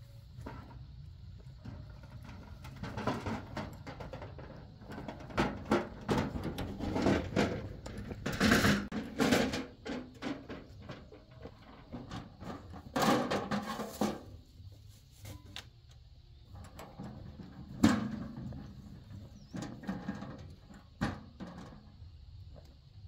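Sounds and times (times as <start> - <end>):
metal wheelbarrow rattling on dirt: 0.0 - 15.5, 16.4 - 22.9
wheelbarrow knocking against wall: 1.6 - 14.4, 16.8 - 22.0.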